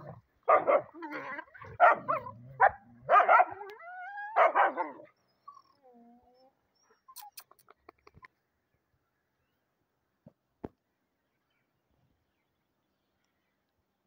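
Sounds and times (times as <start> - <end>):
dogs barking and snarling: 0.0 - 5.7.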